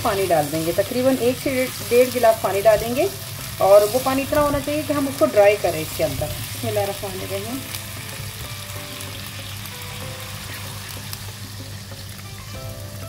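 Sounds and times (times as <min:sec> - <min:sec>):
chicken sizzling in hot oil: 0:00.0 - 0:13.0
soft background music: 0:00.0 - 0:13.0.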